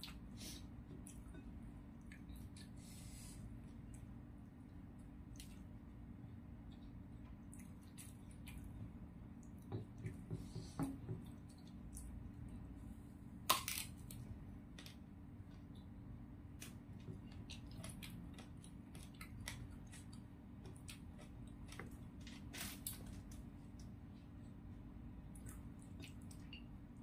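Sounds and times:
faint steady hum: 0.0s - 27.0s
person chewing food: 3.6s - 10.3s, 13.5s - 24.6s, 25.2s - 26.8s.

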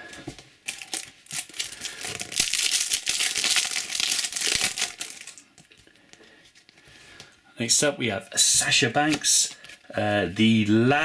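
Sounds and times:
foil wrapper crinkling: 0.6s - 5.6s.

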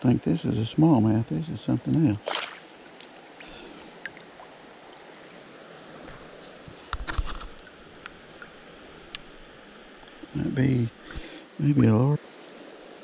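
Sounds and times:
creek water running: 0.0s - 13.0s
splashing and knocks: 2.2s - 2.6s.

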